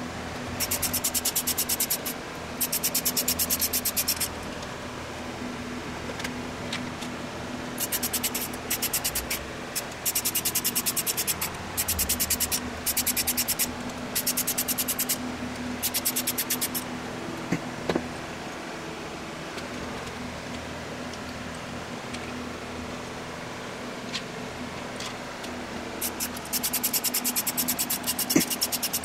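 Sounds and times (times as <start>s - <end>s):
socket ratchet clicking: 0.6s - 4.3s, 7.8s - 15.2s, 15.8s - 16.8s, 26.0s - 29.0s.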